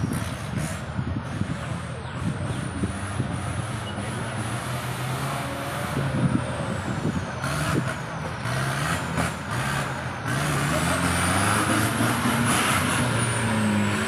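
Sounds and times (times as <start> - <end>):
pickup truck engine revving: 2.9 - 14.0.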